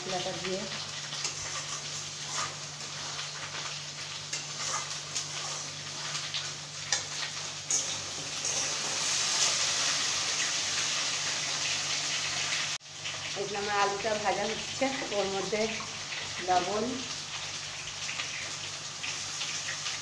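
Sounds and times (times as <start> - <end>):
spice paste sizzling in a pan: 0.0 - 20.0
spatula stirring and scraping: 1.1 - 8.8.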